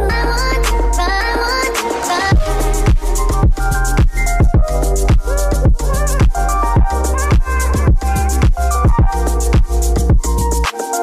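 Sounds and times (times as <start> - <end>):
electronic dance music: 0.1 - 11.0
steady kick drum: 2.3 - 10.4.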